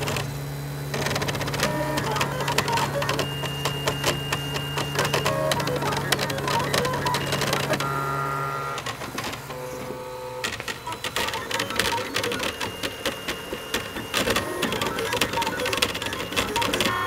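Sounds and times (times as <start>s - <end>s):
stepper motors whining: 0.0s - 17.0s.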